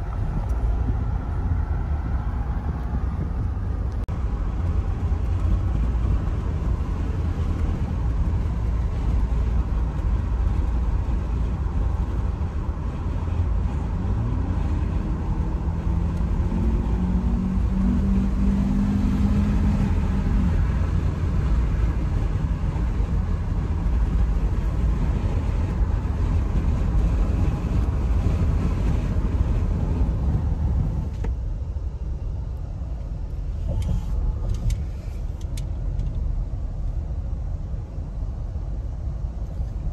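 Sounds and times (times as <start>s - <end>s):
car cabin road and engine rumble: 0.0s - 39.9s
engine hum rising: 0.0s - 39.9s.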